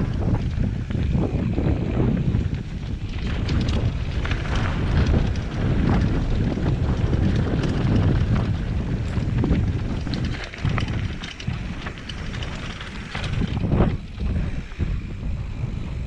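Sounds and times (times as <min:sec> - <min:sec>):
bike rattling: 0:00.0 - 0:16.0
wind buffeting microphone: 0:00.0 - 0:16.0
tyres crunching over gravel: 0:02.8 - 0:14.1.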